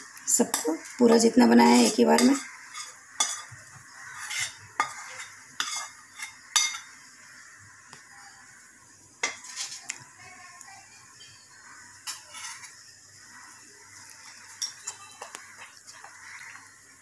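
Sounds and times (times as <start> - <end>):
spoon scraping glass bowl: 1.8 - 6.9, 9.2 - 9.8, 12.0 - 12.8, 14.2 - 16.4.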